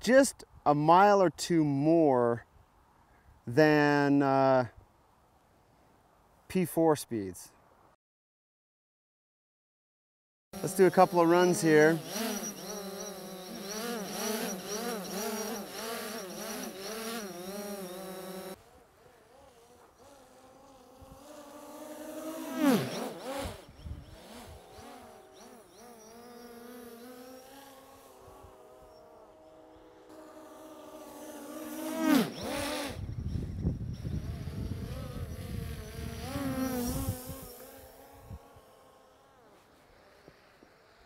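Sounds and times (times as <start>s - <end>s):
drone propellers buzzing: 10.6s - 41.0s.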